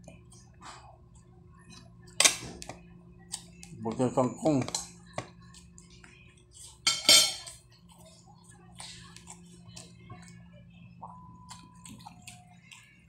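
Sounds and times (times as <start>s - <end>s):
person chewing: 11.4s - 13.0s.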